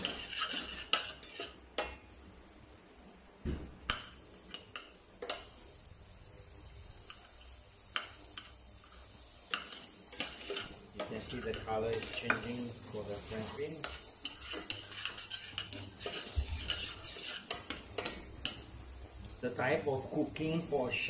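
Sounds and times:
faint sizzle: 0:00.0 - 0:21.0
metal tongs clinking on steel pot: 0:03.9 - 0:05.5, 0:07.1 - 0:12.6, 0:13.3 - 0:18.6.

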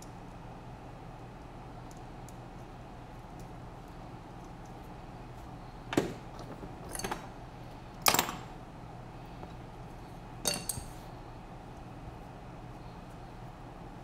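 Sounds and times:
metal tools clinking: 0:10.5 - 0:10.9.

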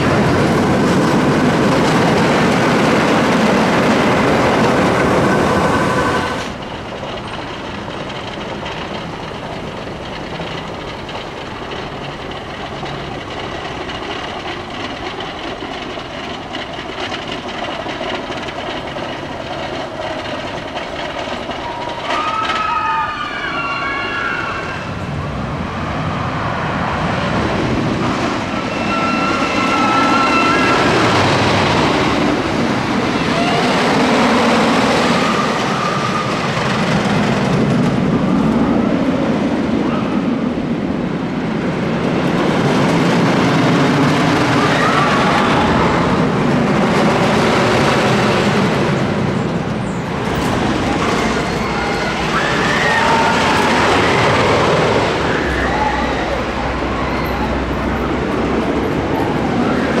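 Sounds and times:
roller coaster rumbling on track: 0:00.0 - 1:00.0
riders yelling: 0:21.1 - 0:25.0, 0:33.0 - 0:36.7, 0:44.0 - 0:46.4, 0:50.6 - 0:58.0.

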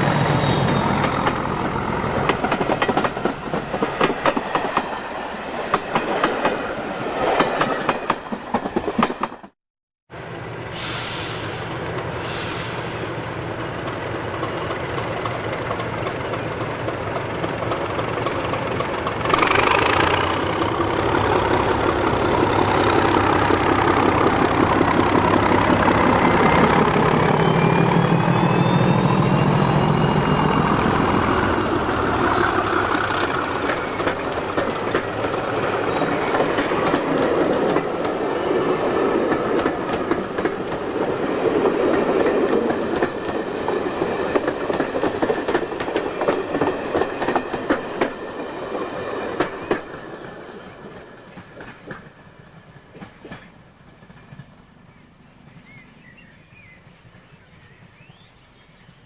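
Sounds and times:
diesel locomotive engine: 0:00.0 - 0:08.8, 0:10.1 - 0:58.3
train wheels clacking over rail joints: 0:02.1 - 0:04.9, 0:32.2 - 0:38.2, 0:39.2 - 0:48.5
thin high whistle: 0:27.3 - 0:30.8.

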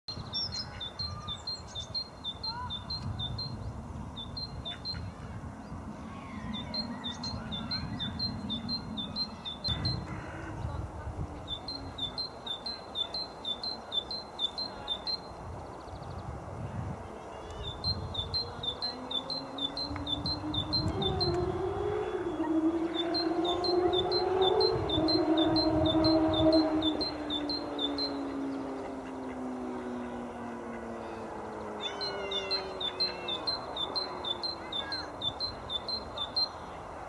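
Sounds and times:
great tit singing: 0:00.1 - 0:16.3, 0:17.2 - 0:37.0
low rising tone: 0:17.7 - 0:36.2.

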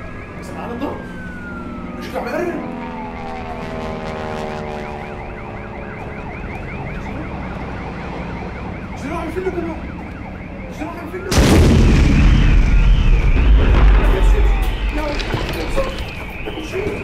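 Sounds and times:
sirens wailing: 0:00.0 - 0:17.0
heavy low rumble: 0:11.3 - 0:15.8
loud blast: 0:11.3 - 0:16.3.

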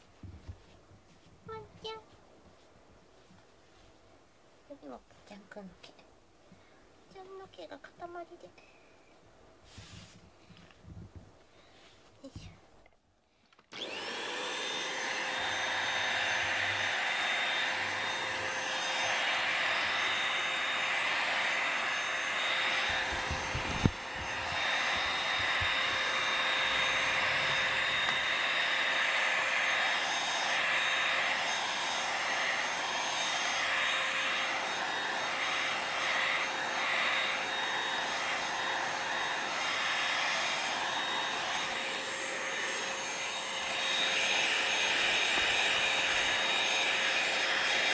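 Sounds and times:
vacuum cleaner motor whining: 0:13.7 - 0:47.9.

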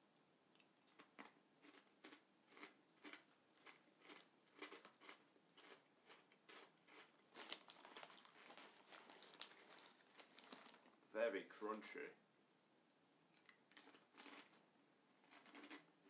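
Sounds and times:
person chewing crunchy crisps: 0:00.6 - 0:10.9, 0:13.4 - 0:14.6, 0:15.2 - 0:15.9.

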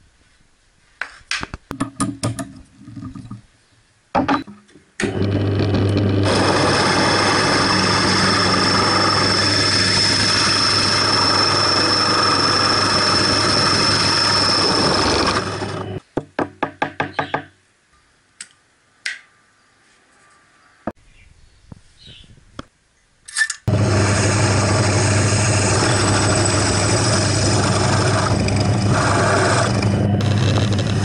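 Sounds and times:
drill press motor whining: 0:05.0 - 0:16.0, 0:23.7 - 0:31.0.

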